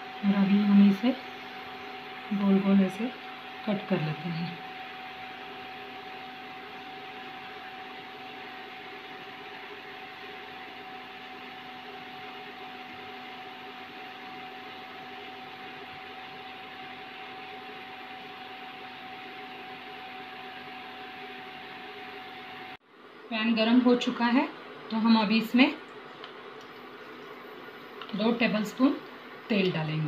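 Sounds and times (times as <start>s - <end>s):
thin whine: 0.0s - 24.2s
background hum and hiss: 0.0s - 30.0s.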